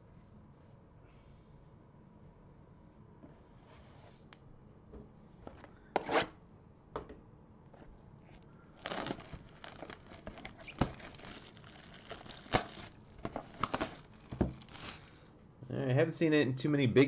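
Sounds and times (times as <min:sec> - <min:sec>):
plastic shrink wrap crinkling: 0:08.7 - 0:15.3.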